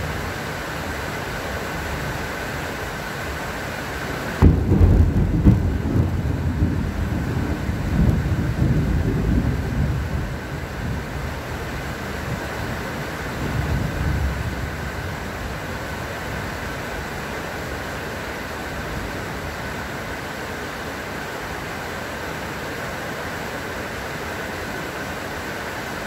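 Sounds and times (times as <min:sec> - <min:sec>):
steady rain: 0:00.0 - 0:26.0
thunder clap rumbling: 0:04.4 - 0:11.4.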